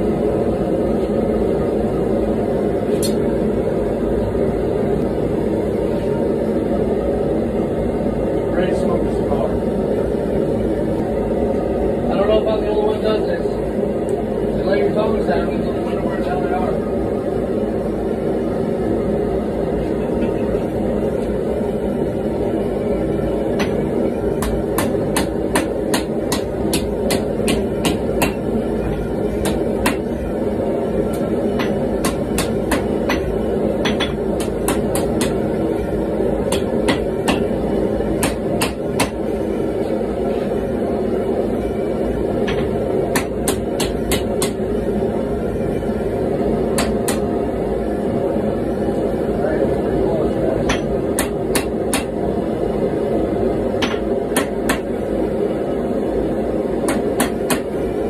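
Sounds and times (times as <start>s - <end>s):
gas forge burner noise: 0.0s - 58.0s
hammer striking hot metal on anvil: 23.6s - 23.8s, 24.4s - 30.1s, 31.1s - 35.4s, 36.4s - 37.6s, 38.2s - 39.2s, 42.4s - 44.6s, 46.8s - 47.3s, 50.6s - 52.2s, 53.8s - 54.9s, 56.8s - 57.7s.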